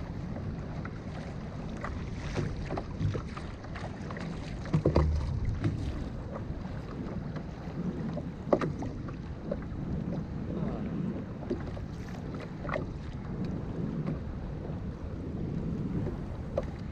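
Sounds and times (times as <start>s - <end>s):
water slapping against kayak hull: 0.0s - 16.9s
wind buffeting microphone: 0.0s - 16.9s
knocks on kayak: 4.6s - 6.0s.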